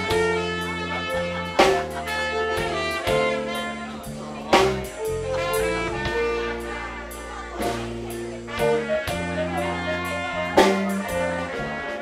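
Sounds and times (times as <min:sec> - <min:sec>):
blues band playing: 0:00.0 - 0:12.0
loud drum hit: 0:04.5 - 0:06.7.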